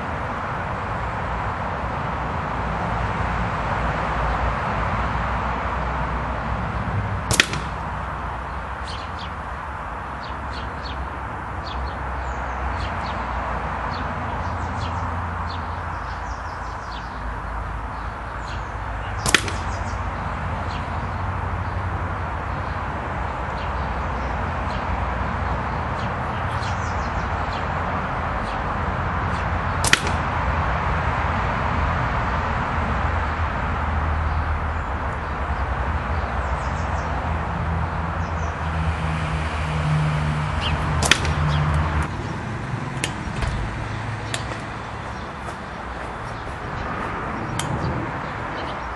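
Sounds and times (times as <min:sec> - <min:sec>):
birds chirping: 0:06.4 - 0:31.0, 0:34.1 - 0:48.9
air rifle firing: 0:07.2 - 0:08.2, 0:19.2 - 0:20.0, 0:29.8 - 0:30.5, 0:41.0 - 0:41.8.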